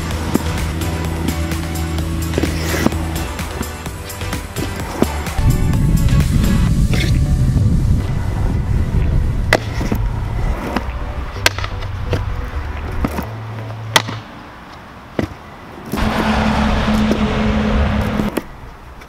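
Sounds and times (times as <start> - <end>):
background music with bass: 0.0 - 13.3, 16.0 - 18.4.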